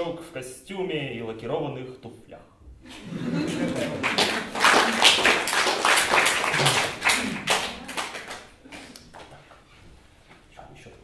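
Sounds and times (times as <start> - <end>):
audience applause: 3.4 - 9.4.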